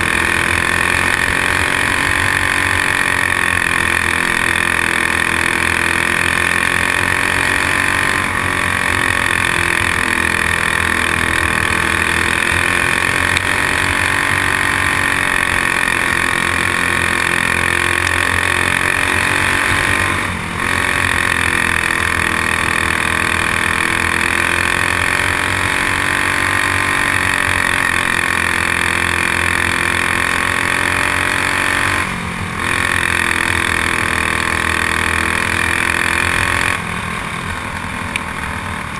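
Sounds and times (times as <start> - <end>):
kart engine running hard: 0.0 - 38.9.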